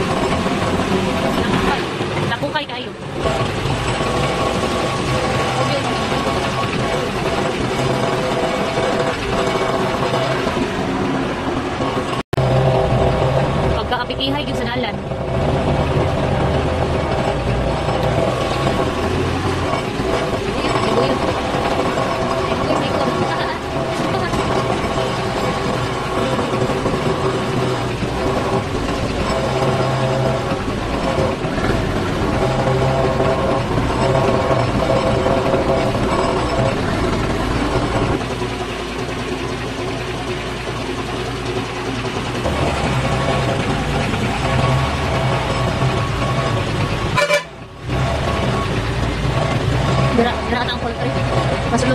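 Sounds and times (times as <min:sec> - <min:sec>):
truck engine droning: 0:00.0 - 0:51.9.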